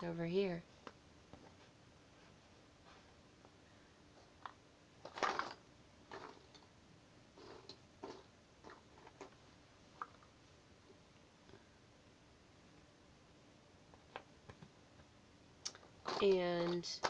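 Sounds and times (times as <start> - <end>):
cardboard pieces rustling: 5.0 - 6.3.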